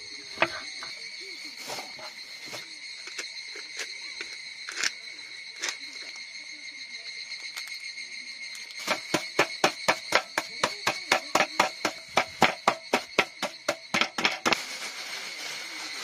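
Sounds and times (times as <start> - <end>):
insect trill: 0.0 - 16.0
stick pounding on cutting board: 8.9 - 14.5.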